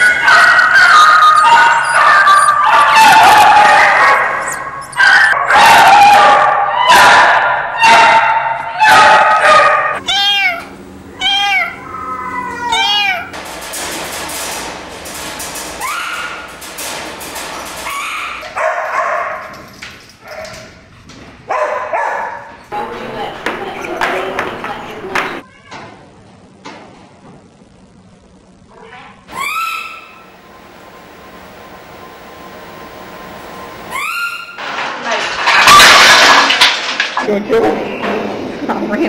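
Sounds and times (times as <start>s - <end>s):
caged dogs barking and howling: 0.0s - 20.9s, 21.5s - 25.4s, 29.3s - 34.7s
scattered animal cries: 10.0s - 13.3s
short rising and falling cries: 10.0s - 13.3s, 29.3s - 34.6s.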